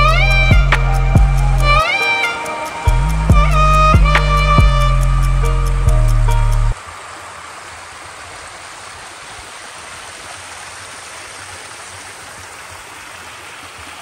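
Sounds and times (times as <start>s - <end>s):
background music: 0.0s - 6.8s
water flowing in stone channel: 6.7s - 14.0s.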